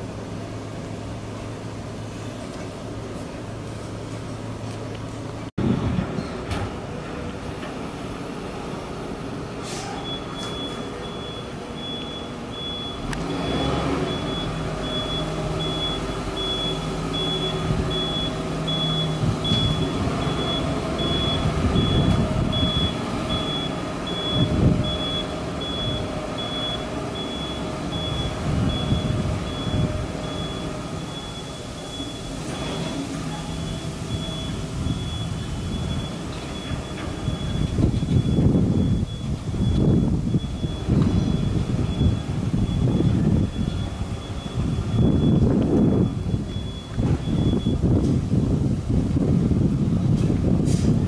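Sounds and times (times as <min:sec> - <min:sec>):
crane diesel engine running: 0:00.0 - 0:51.0
high warning beeper: 0:10.0 - 0:32.8.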